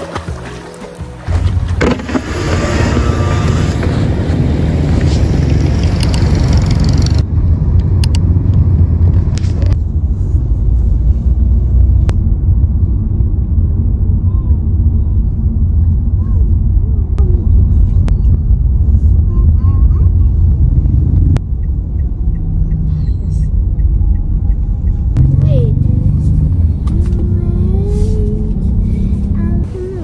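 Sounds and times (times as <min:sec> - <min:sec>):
car road and engine rumble: 0:00.0 - 0:30.0.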